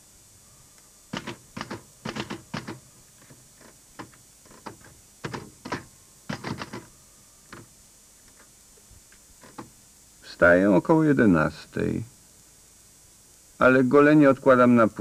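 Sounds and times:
manual typewriter typing: 1.1s - 2.8s, 4.0s - 6.9s.

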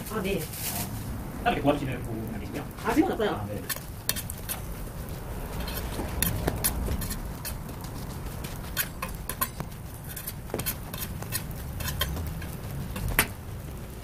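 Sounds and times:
low rumble: 0.5s - 2.9s.

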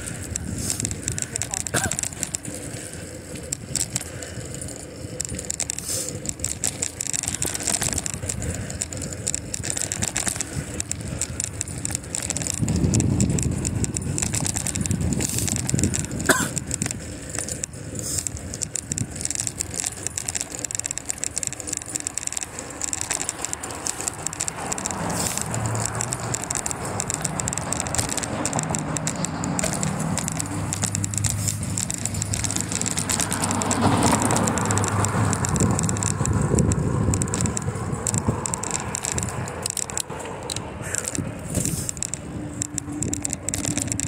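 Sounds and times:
bicycle rattling and clicking: 0.0s - 44.0s.

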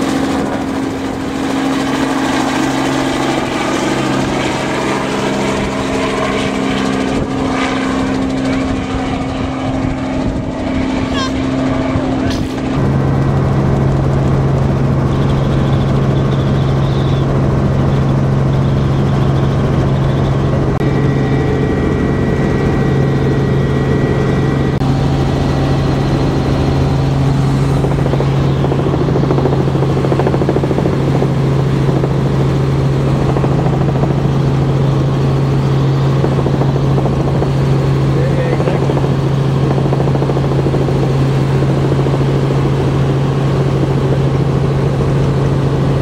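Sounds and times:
helicopter engine and rotor drone: 0.0s - 46.0s.

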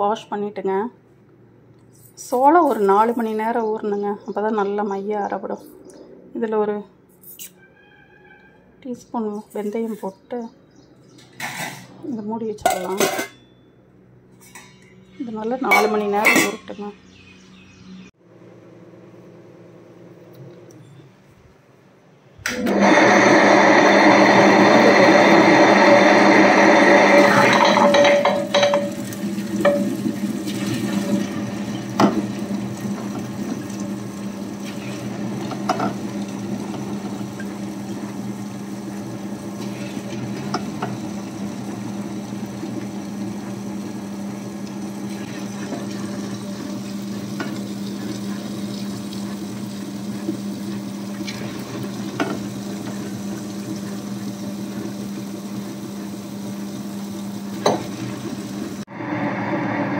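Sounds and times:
stone rollers churning: 22.5s - 56.8s
wet grinder motor hum: 22.5s - 59.9s.

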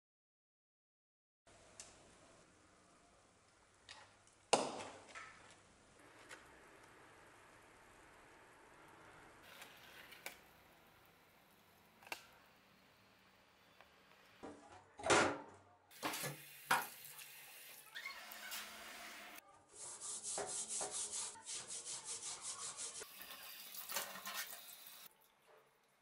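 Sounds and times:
tap running water: 15.9s - 19.4s, 23.1s - 25.1s
brush scrubbing metal blade: 19.8s - 23.1s.

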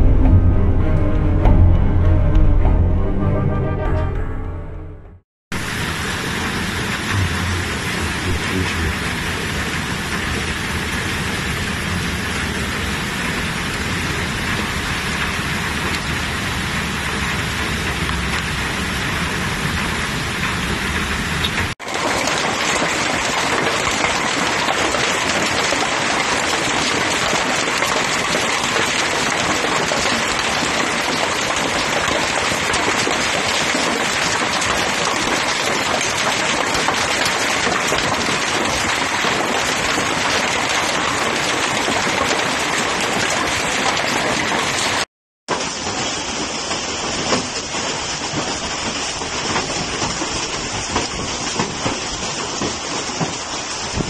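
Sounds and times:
heavy rain hissing: 5.6s - 54.0s
hail clattering: 17.1s - 54.0s.

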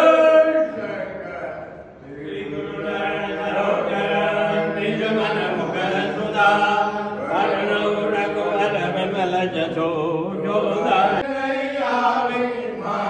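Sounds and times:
voices chanting in long notes: 0.0s - 13.0s.

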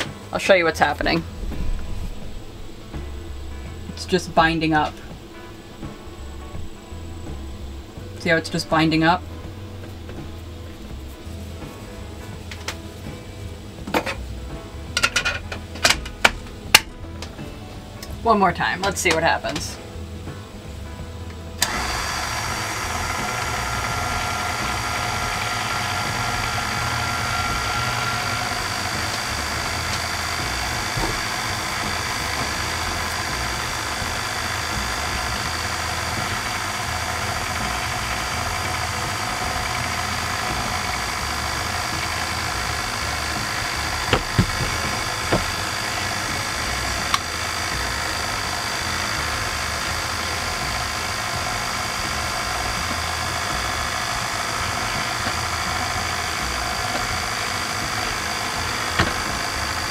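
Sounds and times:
stand mixer motor running: 0.0s - 13.8s, 21.0s - 59.9s
sharp clicks: 21.3s - 59.9s.

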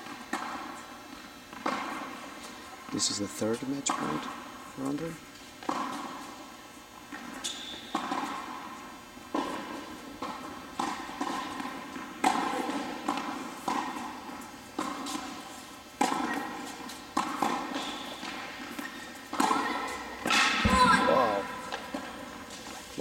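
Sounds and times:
tennis ball bouncing on court: 1.5s - 2.2s, 5.6s - 6.4s, 7.1s - 15.4s, 16.0s - 22.5s
tennis ball hit by racquets: 7.1s - 15.4s, 16.0s - 22.4s.

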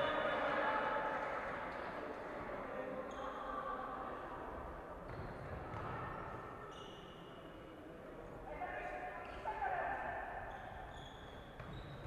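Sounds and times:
faint high squeaks: 6.7s - 7.4s, 10.4s - 12.0s.

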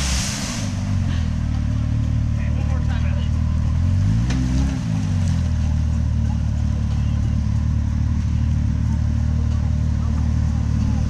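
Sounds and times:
creek water rushing: 0.0s - 1.1s
engine running at low revs: 0.0s - 11.0s.

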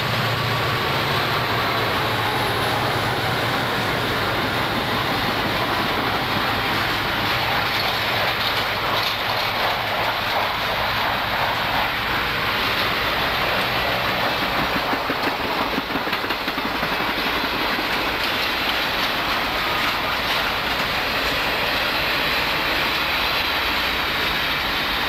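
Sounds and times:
diesel engine drone: 0.0s - 14.9s
train wheels rumbling on rails: 0.0s - 25.0s.

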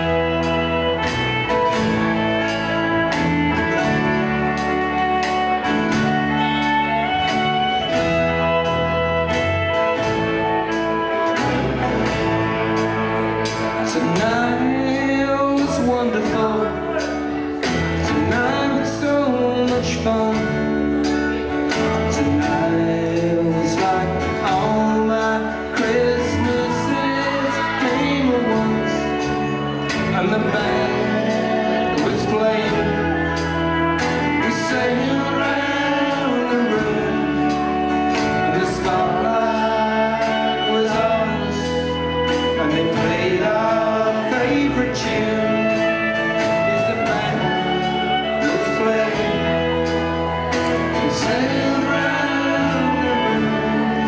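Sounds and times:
folk band playing: 0.0s - 54.0s
man singing: 12.0s - 54.0s.

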